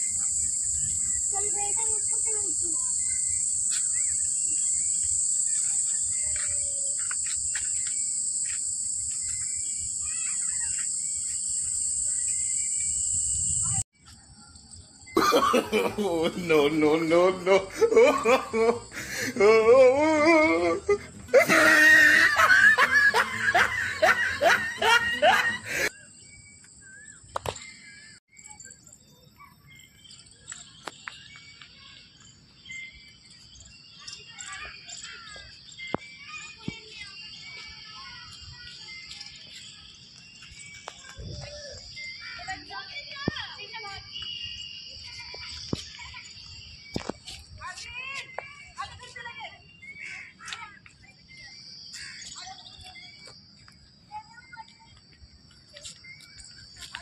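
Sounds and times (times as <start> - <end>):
bird chirps: 0.0 - 19.4, 21.0 - 57.0
high-pitched insect chorus: 0.0 - 57.0
person laughing: 15.2 - 25.9.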